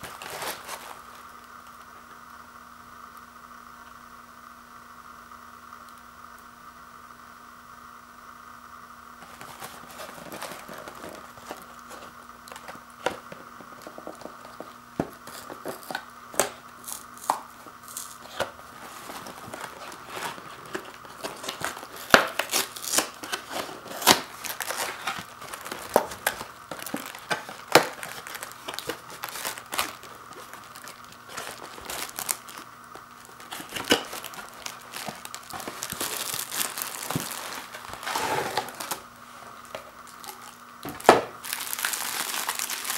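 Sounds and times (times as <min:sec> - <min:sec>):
cardboard box tearing: 0:00.0 - 0:01.2, 0:09.2 - 0:14.2, 0:17.9 - 0:39.0
foil pouches crinkling: 0:00.0 - 0:01.3, 0:09.2 - 0:42.9.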